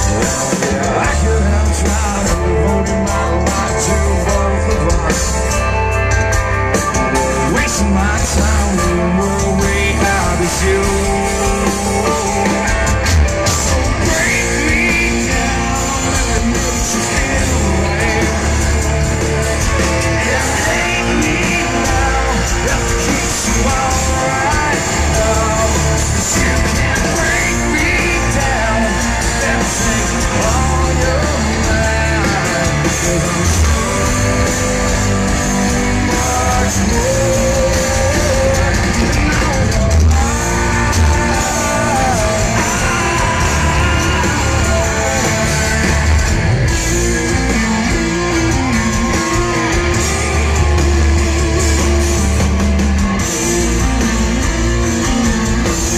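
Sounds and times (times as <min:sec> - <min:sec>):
live rock band playing: 0:00.0 - 0:55.9
person singing: 0:00.0 - 0:55.9.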